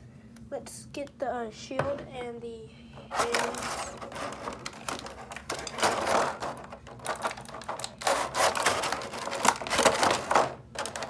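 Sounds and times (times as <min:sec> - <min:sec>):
plastic packaging crackling: 0:03.1 - 0:11.0.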